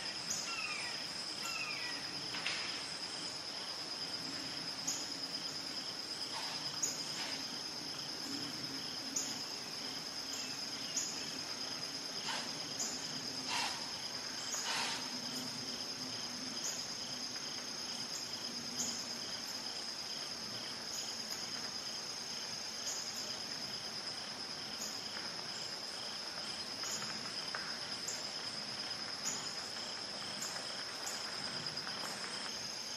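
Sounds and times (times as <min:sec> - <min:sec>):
insect high-pitched trill: 0:00.0 - 0:03.8
insect chirp pulsing: 0:00.0 - 0:32.9.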